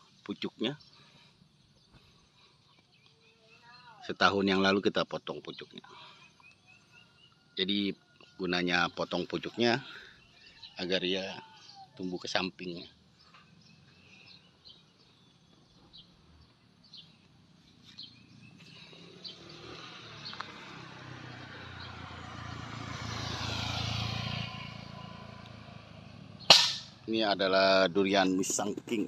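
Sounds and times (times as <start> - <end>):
faint bird chirps: 0.0 - 22.2
motor vehicle passing: 12.8 - 27.2.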